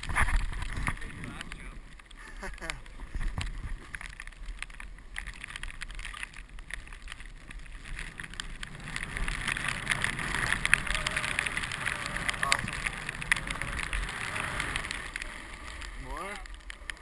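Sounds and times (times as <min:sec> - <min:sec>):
snow hissing and scraping: 0:07.8 - 0:17.0.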